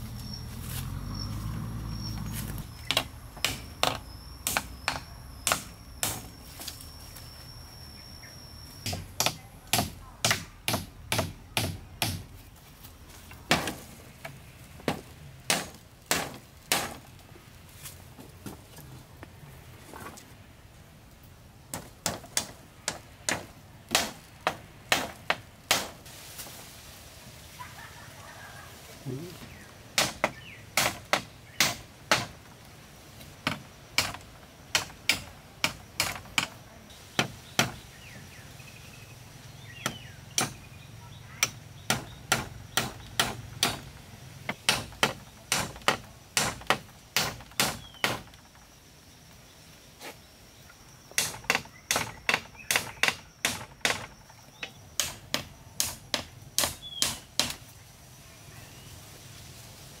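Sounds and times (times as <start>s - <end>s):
hatchet knocking on wooden poles: 2.8s - 6.3s, 8.8s - 12.3s, 30.0s - 32.4s, 33.4s - 36.6s, 37.2s - 37.8s, 39.8s - 40.6s, 41.4s - 43.9s, 44.5s - 48.6s, 51.2s - 57.6s.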